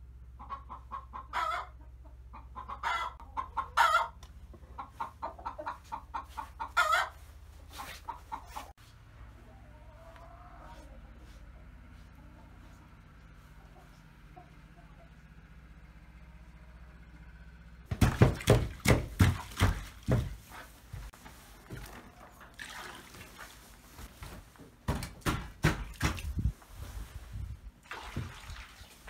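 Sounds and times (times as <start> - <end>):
loud irregular knocks and thuds: 17.9 - 21.1, 24.7 - 26.5.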